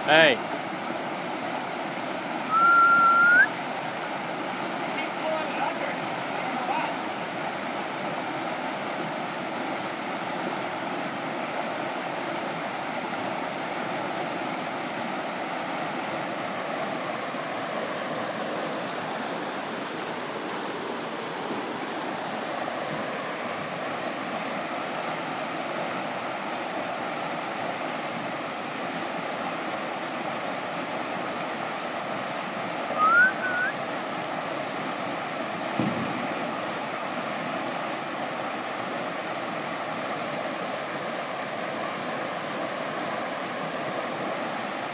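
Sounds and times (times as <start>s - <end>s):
whitewater rushing over rocks: 0.0s - 44.9s
rising whistle-like tone: 2.5s - 3.5s, 33.0s - 33.8s.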